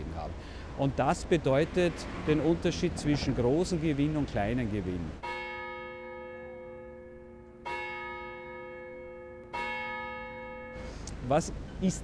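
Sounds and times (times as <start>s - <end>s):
clock tower bell striking: 5.2s - 10.9s.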